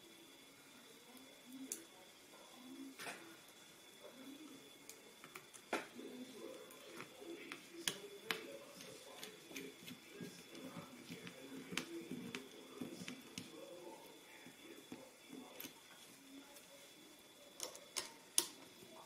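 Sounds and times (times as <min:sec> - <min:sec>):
faint murmur of voices: 0:00.0 - 0:19.0.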